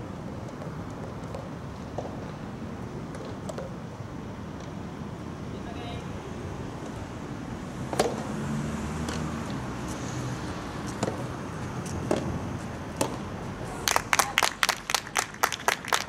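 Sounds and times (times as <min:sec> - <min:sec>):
rackets hitting tennis ball: 0:07.9 - 0:08.3, 0:10.8 - 0:13.3
people clapping: 0:13.8 - 0:16.0.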